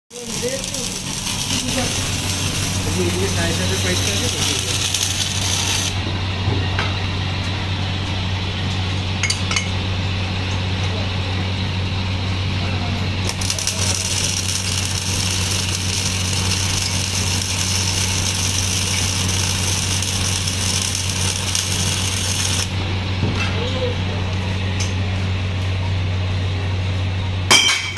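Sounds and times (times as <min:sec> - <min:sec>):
welding arc crackling hiss: 0:00.1 - 0:06.0, 0:13.2 - 0:22.8
low machine hum: 0:00.1 - 0:27.9.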